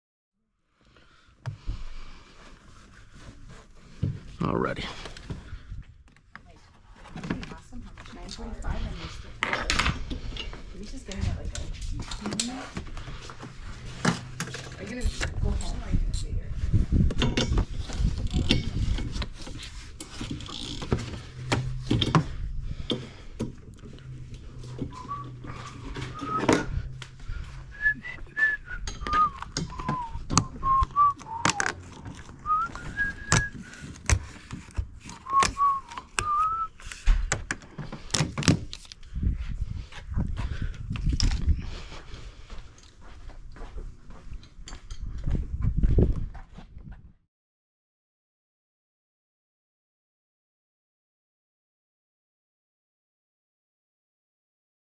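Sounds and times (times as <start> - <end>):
person whistling a tune: 24.9 - 26.7, 27.7 - 31.8, 32.4 - 33.7, 35.1 - 36.8
clicks and rattles of tools: 31.2 - 39.1.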